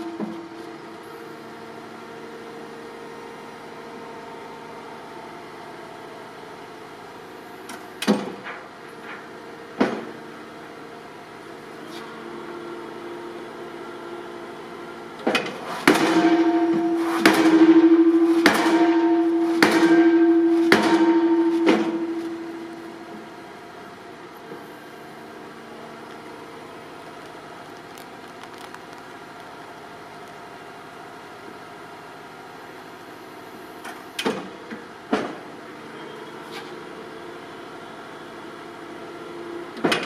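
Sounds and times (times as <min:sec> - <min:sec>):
engine humming: 0:00.0 - 0:39.8
pile hammer blows on steel beam: 0:15.5 - 0:23.6.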